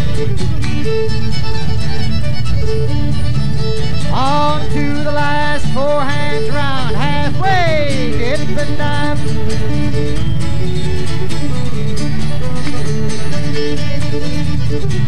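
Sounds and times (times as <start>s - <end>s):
bluegrass fiddle music: 0.0s - 15.0s
bouncing bass beat: 0.0s - 15.0s.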